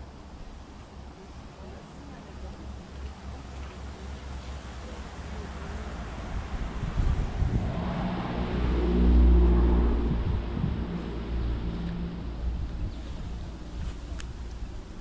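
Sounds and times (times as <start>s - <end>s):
vehicle engine passing: 3.3s - 15.0s.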